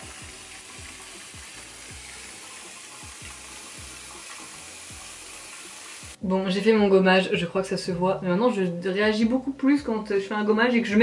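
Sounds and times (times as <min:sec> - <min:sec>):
bath bomb fizzing in water: 0:00.0 - 0:06.2
soft background music with beat: 0:00.0 - 0:06.2.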